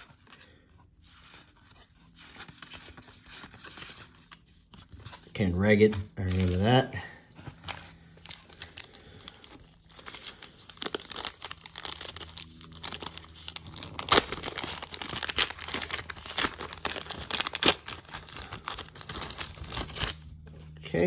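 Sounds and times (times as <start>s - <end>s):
plastic wrapper crinkling: 1.6s - 20.6s
wrapper ripping: 5.8s - 20.4s.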